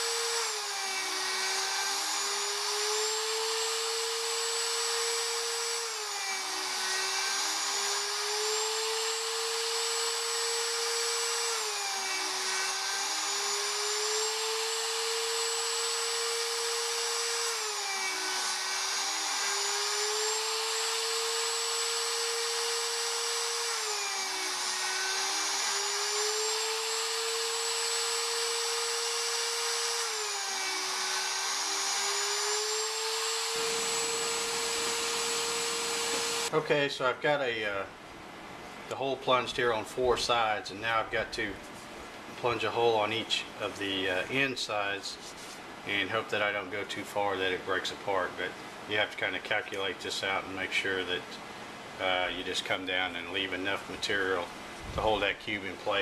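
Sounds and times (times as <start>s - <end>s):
router cutting wood whine: 0.0s - 36.6s.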